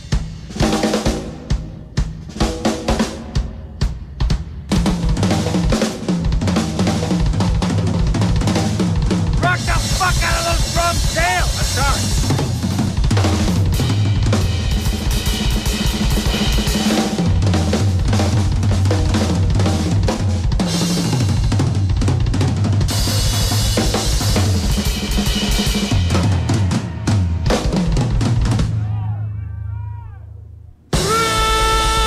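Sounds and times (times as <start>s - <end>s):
drum solo: 0.0s - 29.0s, 30.9s - 32.0s.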